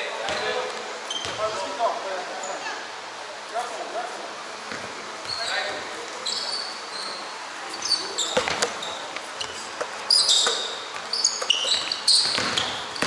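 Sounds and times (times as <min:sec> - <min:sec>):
sneakers squeaking on court: 0:00.3 - 0:01.6, 0:04.7 - 0:13.0
basketball bouncing: 0:08.3 - 0:08.8, 0:09.4 - 0:13.0.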